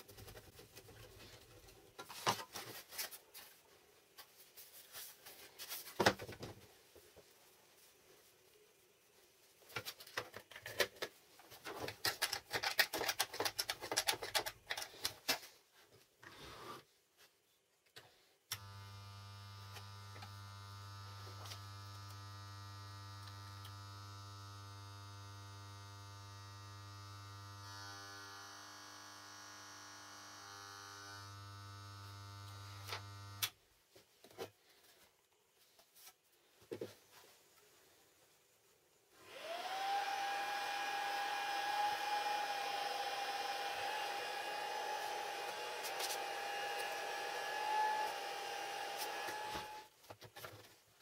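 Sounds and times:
small motor whirring: 0:18.6 - 0:33.4, 0:39.2 - 0:49.9.

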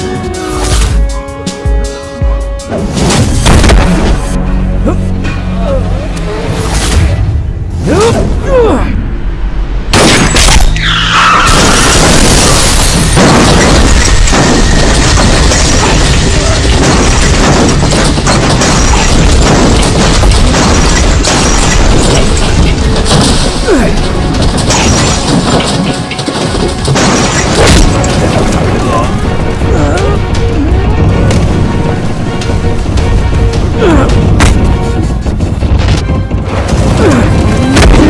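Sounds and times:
dramatic film score: 0:00.0 - 0:38.0
booms and crashing effects: 0:02.7 - 0:04.4, 0:11.4 - 0:38.0.

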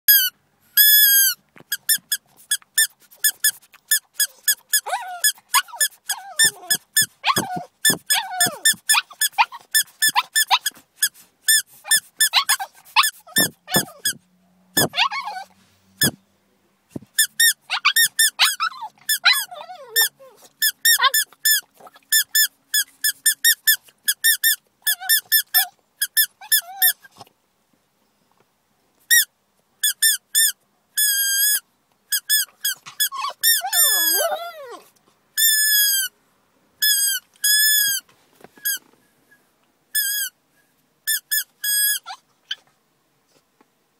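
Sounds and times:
puppy whining: 0:00.1 - 0:14.2, 0:14.8 - 0:16.2, 0:17.2 - 0:27.3, 0:32.2 - 0:36.1, 0:36.8 - 0:38.9, 0:41.1 - 0:42.8
puppy whimpering: 0:04.2 - 0:10.8, 0:11.8 - 0:14.2, 0:14.8 - 0:16.2, 0:17.4 - 0:22.4, 0:24.9 - 0:27.3, 0:32.4 - 0:36.1, 0:41.7 - 0:42.7.

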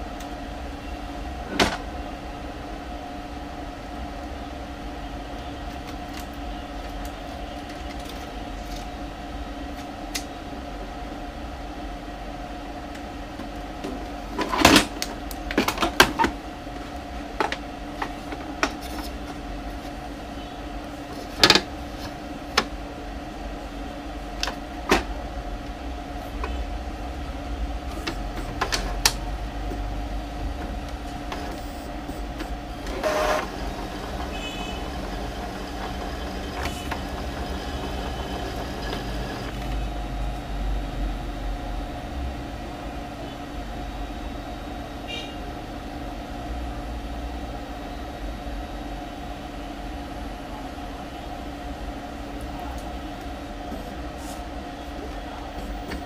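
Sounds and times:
printer motor hum: 0:12.6 - 0:40.6
printer parts clicking and knocking: 0:32.4 - 0:39.6.

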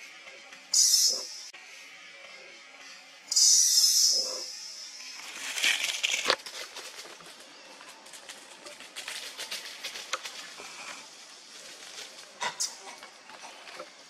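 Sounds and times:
branches and leaves rustling: 0:05.0 - 0:14.0.

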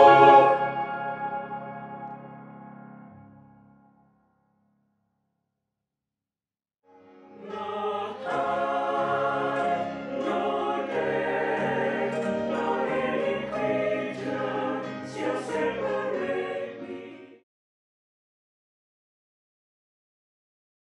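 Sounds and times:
mixed choir singing: 0:00.0 - 0:01.6, 0:07.3 - 0:17.4.

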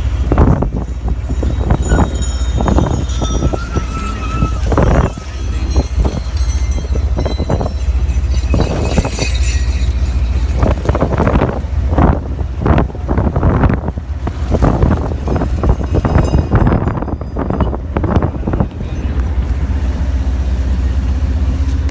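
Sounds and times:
low road and engine rumble: 0:00.0 - 0:21.9
wind buffeting microphone: 0:00.0 - 0:21.9.

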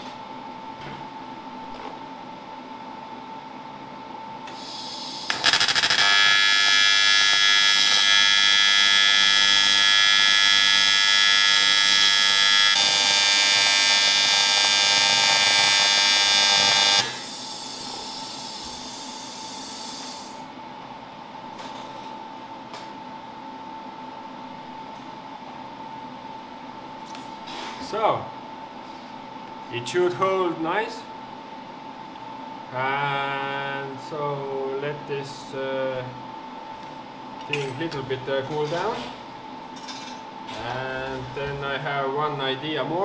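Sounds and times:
welding arc buzzing: 0:04.5 - 0:20.5.

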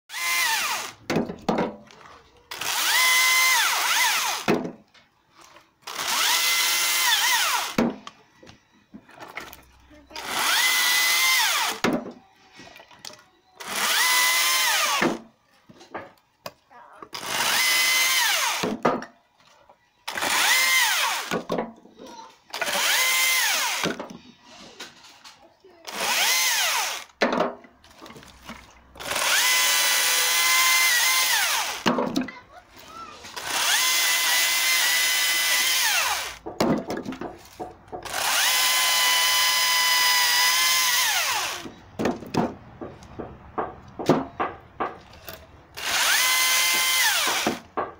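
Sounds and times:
electric chainsaw cutting branches: 0:00.1 - 0:01.0, 0:02.5 - 0:04.5, 0:05.8 - 0:07.8, 0:10.1 - 0:11.8, 0:13.6 - 0:15.2, 0:17.1 - 0:18.7, 0:20.1 - 0:21.4, 0:22.5 - 0:24.0, 0:25.9 - 0:27.2, 0:29.0 - 0:31.9, 0:33.3 - 0:36.4, 0:38.0 - 0:41.7, 0:45.8 - 0:47.6
wood knocking: 0:01.1 - 0:01.9, 0:36.4 - 0:38.1, 0:41.6 - 0:45.2, 0:47.4 - 0:47.9.

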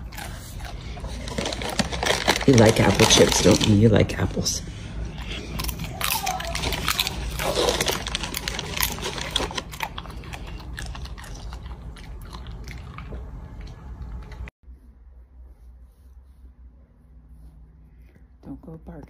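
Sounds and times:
dog crunching apple chip: 0:00.0 - 0:04.6, 0:05.2 - 0:14.4.

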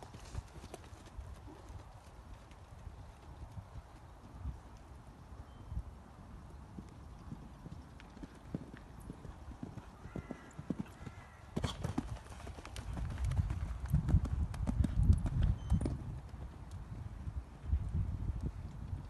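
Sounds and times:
horse hoofbeats cantering: 0:00.0 - 0:05.0, 0:06.7 - 0:16.8.

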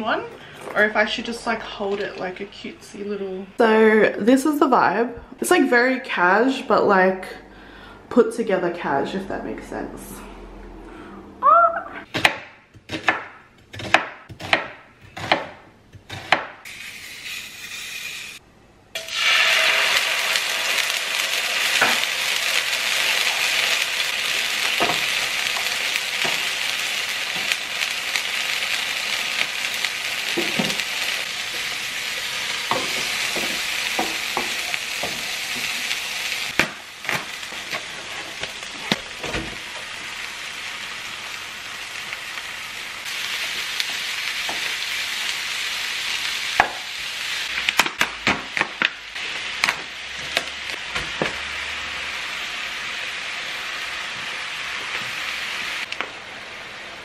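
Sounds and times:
onion sizzling in oil: 0:16.1 - 0:18.4, 0:19.0 - 0:57.0.

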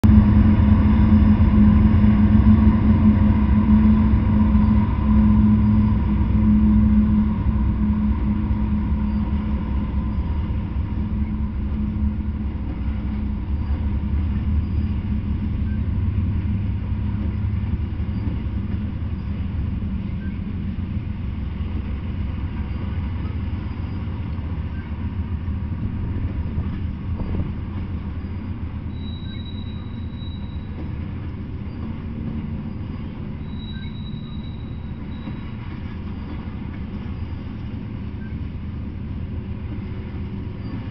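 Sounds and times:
diesel locomotive engines droning: 0:00.0 - 0:40.9
tank cars rumbling and rattling: 0:00.0 - 0:40.9
wheel squeal: 0:01.0 - 0:12.0, 0:12.7 - 0:16.0, 0:18.0 - 0:20.5, 0:22.5 - 0:25.2, 0:26.2 - 0:38.5, 0:40.5 - 0:40.9.

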